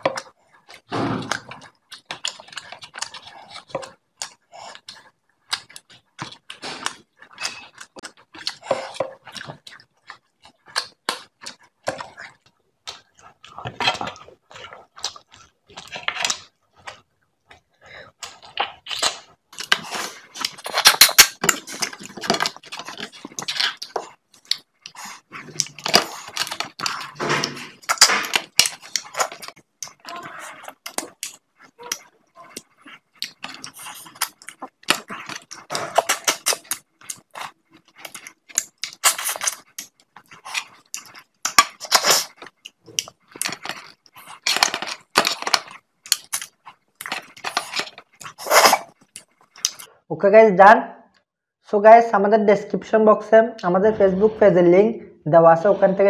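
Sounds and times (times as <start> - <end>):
wet chewing: 0.0 - 50.0
lip smacking: 0.1 - 50.0
crackly crunching: 18.2 - 49.9.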